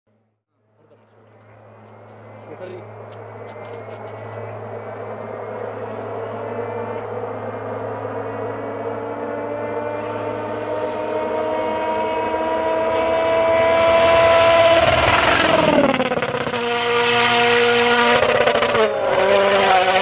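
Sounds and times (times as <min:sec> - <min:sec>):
rally car engines passing: 0:00.7 - 0:20.0
sharp engine crackles: 0:00.8 - 0:10.9, 0:13.5 - 0:19.2.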